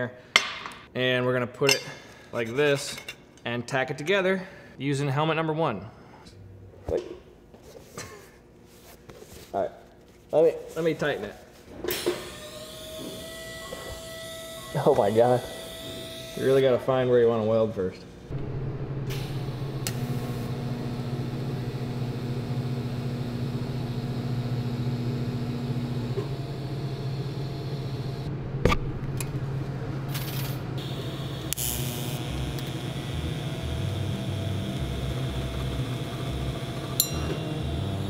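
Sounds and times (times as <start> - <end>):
welding arc buzzing and hissing: 12.2 - 16.7, 18.3 - 28.3, 30.0 - 38.0
welding machine humming: 12.2 - 16.8, 18.3 - 28.3, 29.0 - 38.0.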